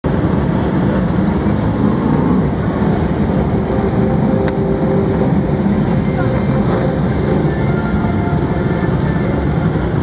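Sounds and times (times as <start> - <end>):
race car engines roaring: 0.0 - 10.0.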